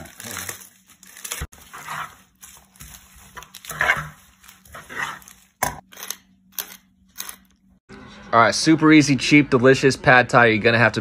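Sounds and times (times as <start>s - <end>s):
lettuce tearing and rustling: 0.0s - 5.6s.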